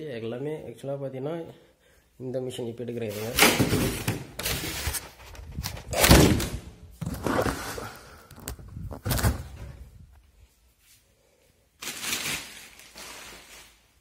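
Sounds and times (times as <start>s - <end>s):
cardboard and styrofoam rustling: 3.1s - 9.9s, 11.8s - 14.0s.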